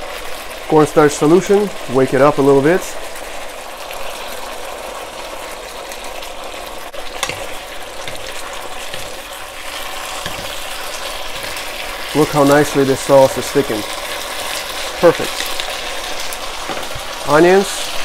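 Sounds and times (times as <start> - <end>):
food sizzling in a wok: 0.0 - 18.0
spatulas knocking on wok: 7.2 - 9.2, 10.2 - 10.7.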